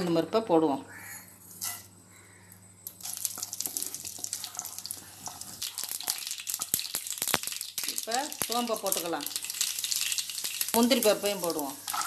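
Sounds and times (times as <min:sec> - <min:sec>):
seeds sizzling in hot oil: 0:02.8 - 0:12.0.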